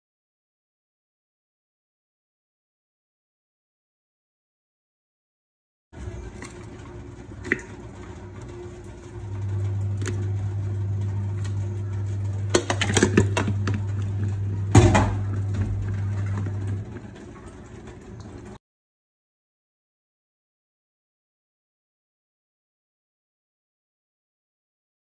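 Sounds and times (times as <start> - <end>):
steady low hum: 6.0 - 18.6.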